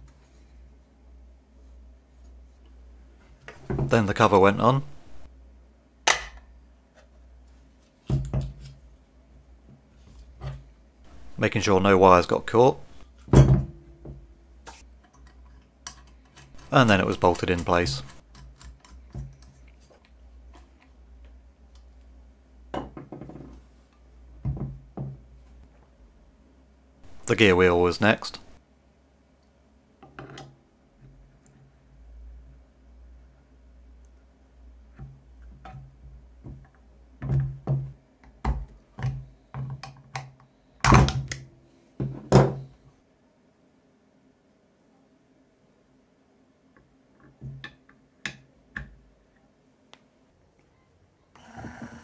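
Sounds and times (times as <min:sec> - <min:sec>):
metal clunks and knocks: 0:13.3 - 0:14.2.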